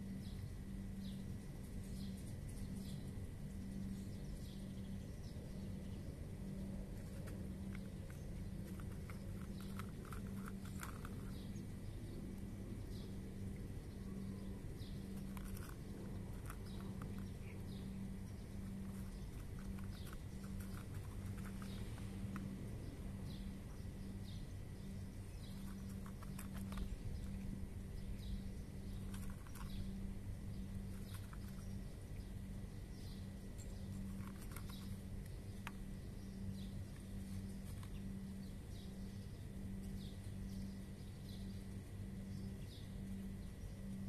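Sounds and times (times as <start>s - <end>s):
birds chirping: 0.0s - 44.0s
steady low hum: 0.0s - 44.0s
cat crunching dry kibble: 6.5s - 12.4s, 14.1s - 23.6s, 25.4s - 32.6s, 33.3s - 38.4s.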